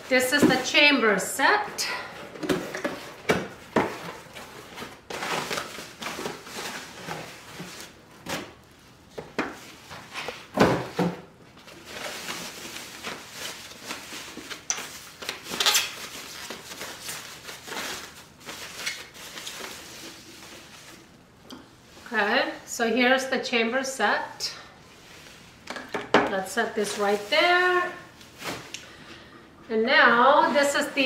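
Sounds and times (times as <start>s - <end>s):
packaging rustling and scraping: 1.6s - 8.6s, 11.6s - 21.2s, 26.8s - 28.8s.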